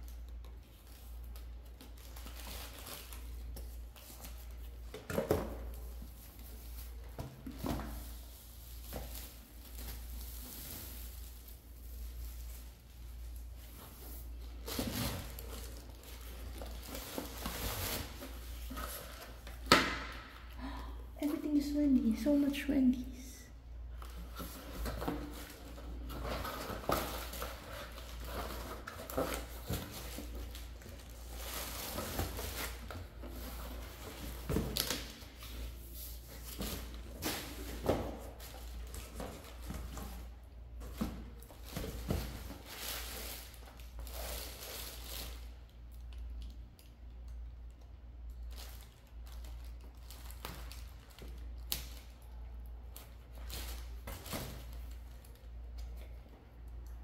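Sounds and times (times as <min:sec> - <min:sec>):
packaging rustling and scraping: 0:00.8 - 0:19.7, 0:24.0 - 0:45.5.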